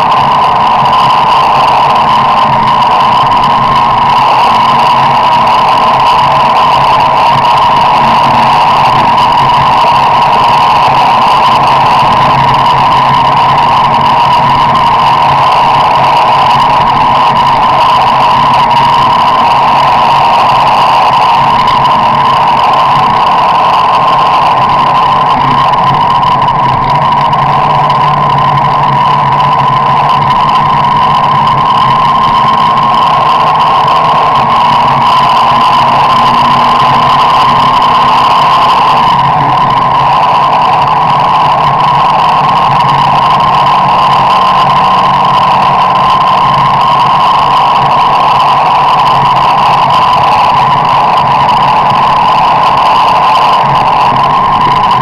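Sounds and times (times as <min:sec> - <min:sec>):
car engine and road noise: 0:00.0 - 0:55.0
steady high hum: 0:00.0 - 0:55.0.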